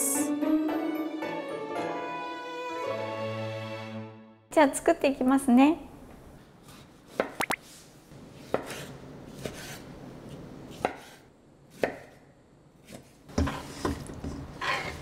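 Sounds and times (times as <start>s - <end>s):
knife chopping on wooden board: 8.4s - 14.0s.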